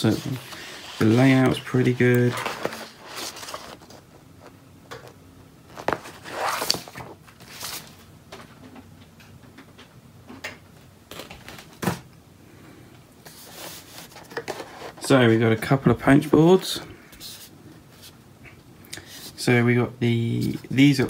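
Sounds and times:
paper and cardboard rustling: 0.0s - 8.1s, 13.2s - 15.3s.

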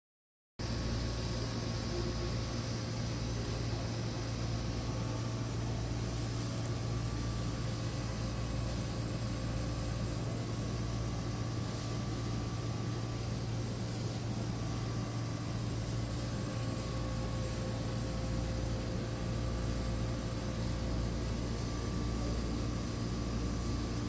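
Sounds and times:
refrigeration units humming: 0.6s - 24.0s.

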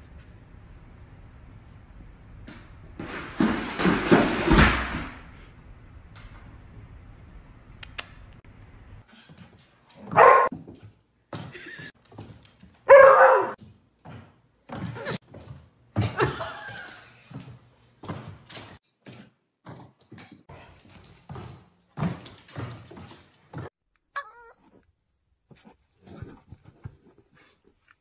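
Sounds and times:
dog barking: 10.0s - 10.5s, 12.9s - 13.6s.

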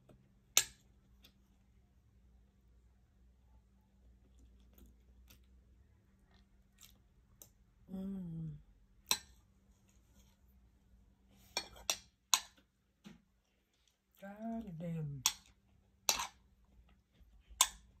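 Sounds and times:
chewing: 6.2s - 7.5s
person humming: 7.9s - 8.7s.

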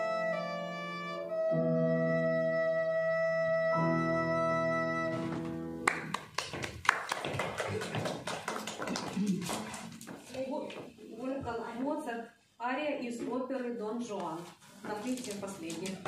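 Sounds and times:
recorder and piano notes: 0.0s - 6.1s
hand clapping: 5.8s - 10.2s.

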